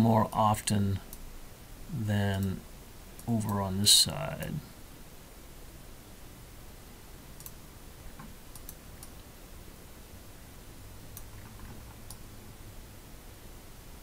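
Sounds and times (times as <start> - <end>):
faint room hiss and hum: 0.0 - 14.0
computer mouse clicking: 7.4 - 7.6, 8.2 - 9.2, 11.1 - 12.2.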